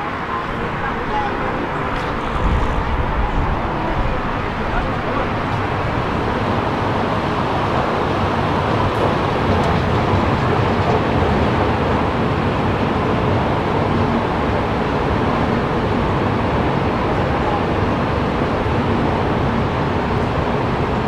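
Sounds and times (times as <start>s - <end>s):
escalator rumble and hum: 0.0s - 21.0s.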